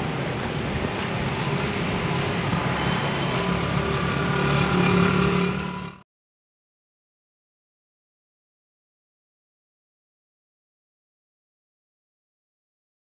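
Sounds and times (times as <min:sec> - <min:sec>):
traffic on wet street: 0:00.0 - 0:06.0.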